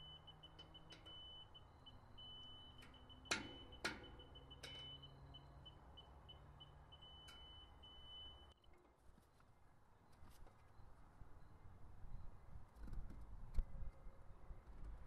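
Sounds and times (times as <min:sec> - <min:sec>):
laser level receiver beeping: 0:00.0 - 0:08.5.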